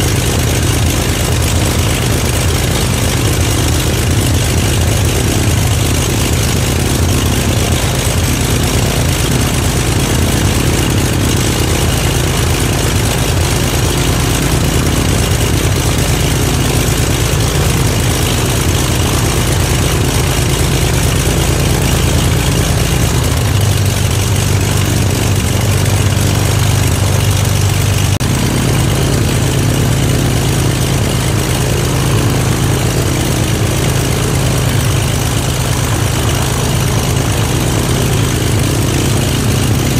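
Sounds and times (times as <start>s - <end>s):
aircraft engine idling: 0.0s - 39.9s.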